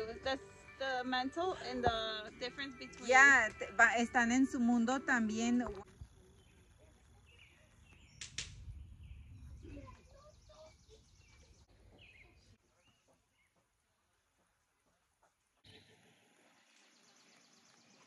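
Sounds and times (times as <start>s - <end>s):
bird chirps: 6.3s - 13.6s
sharp click: 8.2s - 8.6s.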